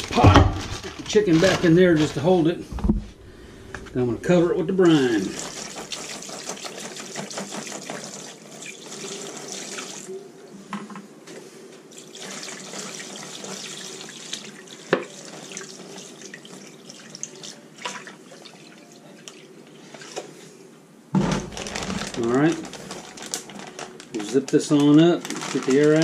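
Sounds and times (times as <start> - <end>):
liquid pouring and splashing: 4.8 - 10.1, 11.9 - 20.3.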